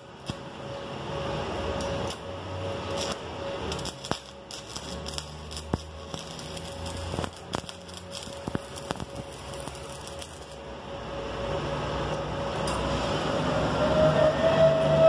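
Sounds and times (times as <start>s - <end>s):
welding arc crackling: 0.0s - 11.1s
sharp welding pops: 0.2s - 0.5s, 2.9s - 10.6s.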